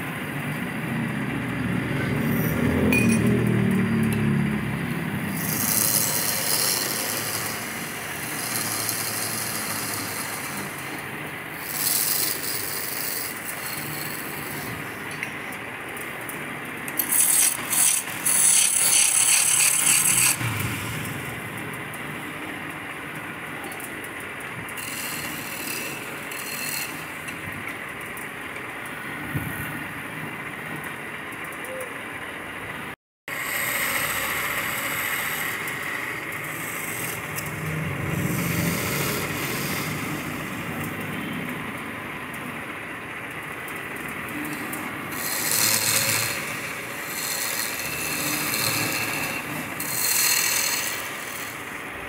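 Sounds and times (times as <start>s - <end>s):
wood lathe humming: 4.8s - 16.3s, 16.9s - 22.1s, 24.7s - 27.6s, 33.3s - 41.0s, 43.8s - 52.0s
chisel scraping spinning wood: 5.0s - 16.3s, 16.9s - 21.7s, 24.7s - 27.8s, 33.3s - 41.0s, 44.4s - 51.9s.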